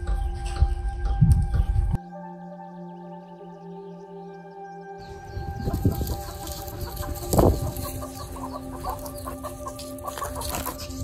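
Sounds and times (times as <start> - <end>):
chickens clucking: 5.0 - 11.0
loud chicken calls: 5.2 - 11.0.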